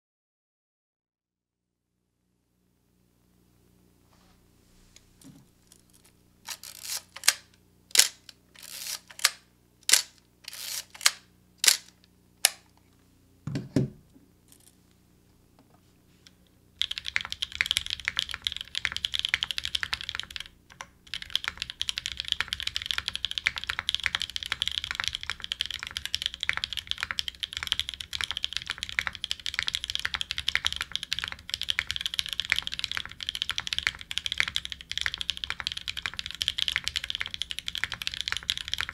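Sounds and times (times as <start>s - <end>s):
fast mechanical keyboard typing: 6.5s - 7.4s, 8.0s - 11.8s, 16.8s - 38.9s
sharp clicks: 6.5s - 12.8s.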